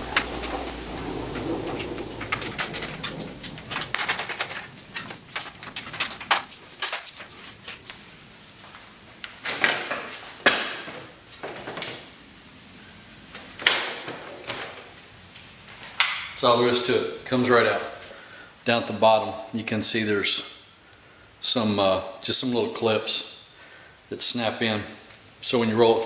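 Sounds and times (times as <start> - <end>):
plastic grille clicking and scraping: 0.0 - 7.8.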